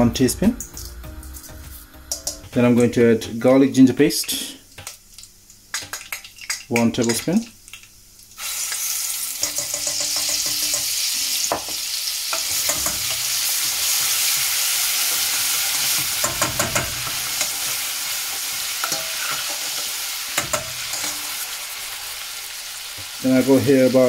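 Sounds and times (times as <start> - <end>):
metal spoon scraping a pan: 0.6 - 2.5, 9.3 - 11.6, 12.3 - 21.5
paste sizzling in hot oil: 4.0 - 24.0.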